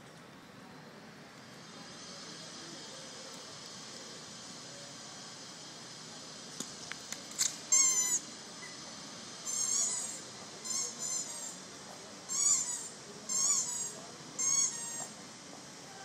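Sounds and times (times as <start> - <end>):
high-pitched animal calls: 7.7 - 8.2, 9.4 - 11.6, 12.3 - 15.2.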